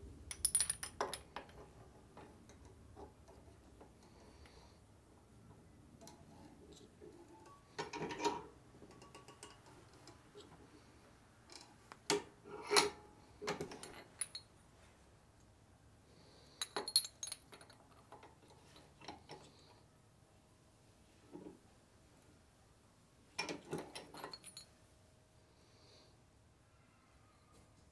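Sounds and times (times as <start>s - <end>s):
small metal parts clinking: 0.3s - 1.6s, 13.5s - 14.5s, 16.6s - 18.9s, 23.4s - 24.8s.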